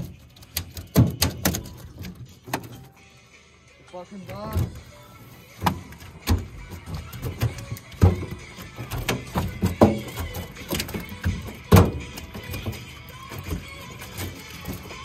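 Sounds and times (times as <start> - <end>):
fishing gear knocking and clicking: 0.0 - 2.9, 5.6 - 15.0
thuds on aluminum boat hull: 5.6 - 12.8.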